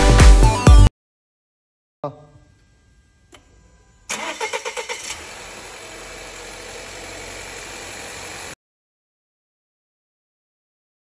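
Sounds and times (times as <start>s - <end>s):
car engine idling: 4.1s - 8.6s
starter motor cranking: 4.1s - 8.6s.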